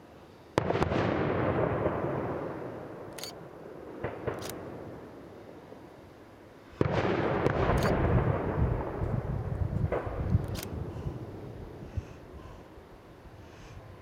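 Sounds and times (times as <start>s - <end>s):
rumble of fireworks: 0.0s - 5.9s, 6.6s - 14.0s.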